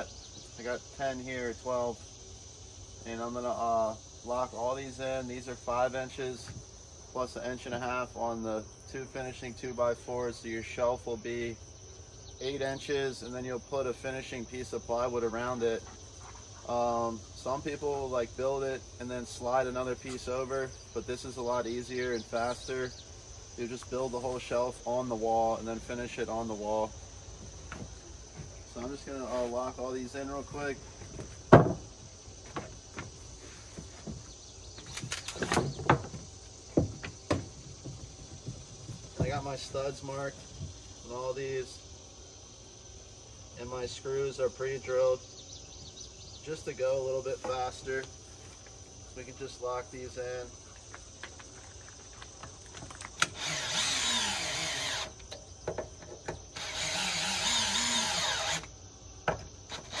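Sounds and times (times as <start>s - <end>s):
insect trill: 0.0s - 60.0s
wooden knocks and clacks: 31.1s - 31.9s, 35.0s - 39.4s
cordless drill driving screws: 53.2s - 55.2s, 56.6s - 58.7s, 59.7s - 60.0s.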